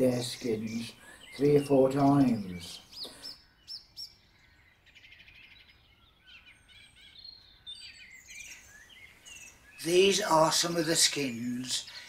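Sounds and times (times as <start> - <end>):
faint birdsong: 0.0 - 12.0.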